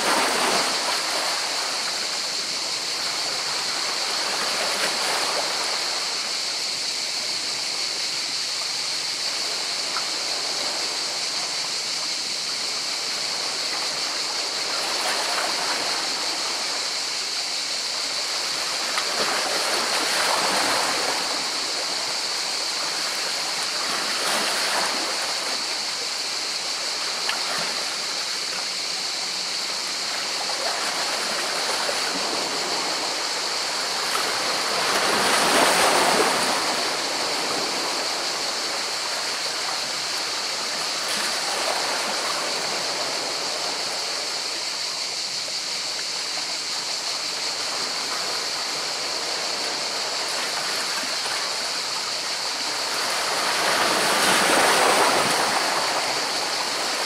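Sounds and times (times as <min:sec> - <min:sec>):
sea waves breaking on rocks: 0:33.7 - 0:39.3, 0:52.8 - 0:57.0.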